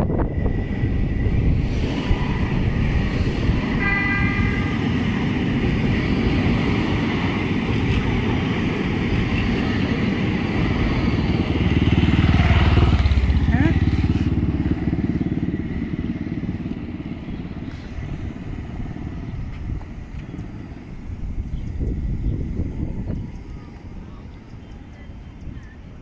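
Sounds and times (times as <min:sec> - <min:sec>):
tram passing with rumble: 0:00.0 - 0:26.0
tram horn tone: 0:03.7 - 0:05.1
motorcycle engine: 0:11.0 - 0:17.0.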